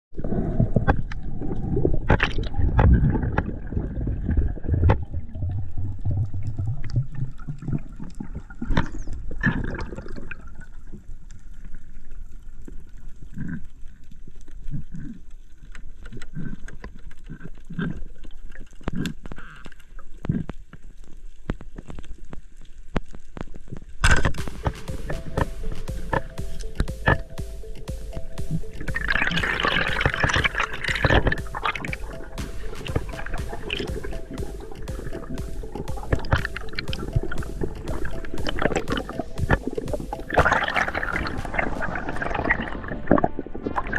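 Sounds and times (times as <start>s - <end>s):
underwater water rushing: 24.3s - 43.9s
music: 24.4s - 43.9s.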